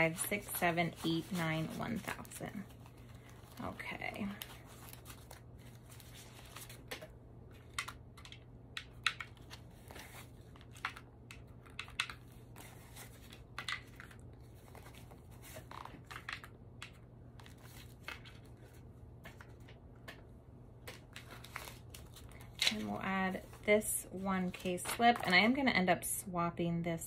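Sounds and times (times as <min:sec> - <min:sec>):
banknotes rustling: 0:00.0 - 0:08.0.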